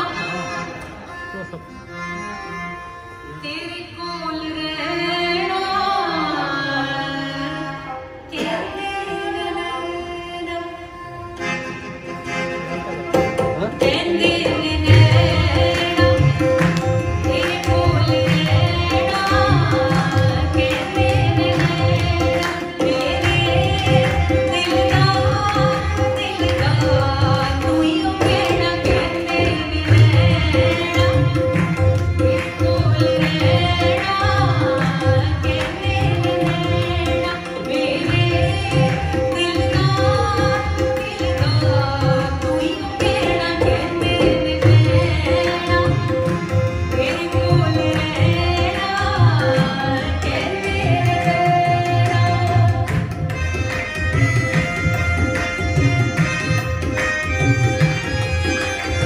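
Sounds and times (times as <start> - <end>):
harmonium: 0.0 - 59.0
violin: 0.0 - 59.0
woman singing: 3.4 - 11.0, 13.8 - 53.2
tabla strokes: 11.4 - 59.0.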